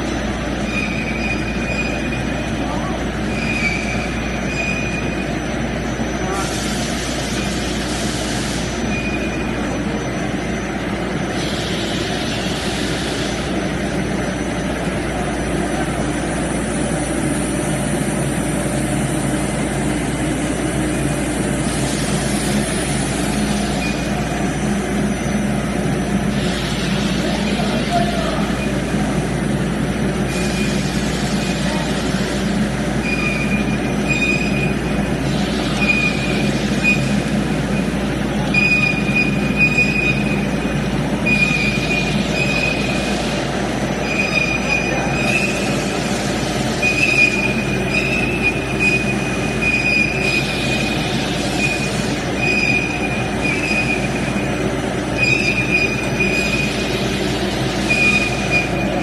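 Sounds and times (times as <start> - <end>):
machine running: 0.0 - 59.0
high squeal: 3.2 - 6.5, 46.8 - 54.5, 55.1 - 56.9, 57.8 - 59.0.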